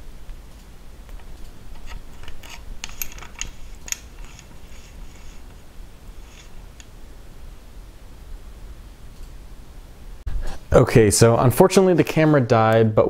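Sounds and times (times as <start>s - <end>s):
flaring tool clicking: 0.3s - 5.6s.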